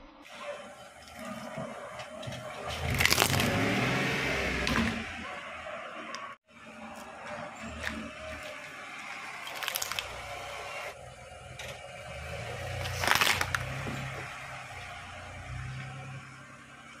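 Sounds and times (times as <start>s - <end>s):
car rumble: 0.3s - 17.0s
tyre crushing plastic bottles: 1.0s - 4.0s, 7.0s - 10.5s, 11.6s - 15.0s
tyre crushing plastic toy: 2.6s - 3.8s, 9.4s - 10.4s, 12.7s - 14.3s.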